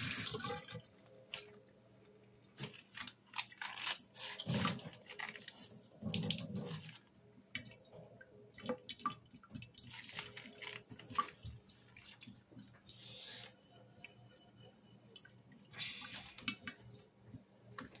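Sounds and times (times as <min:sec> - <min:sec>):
water dripping into sink: 0:06.0 - 0:13.0.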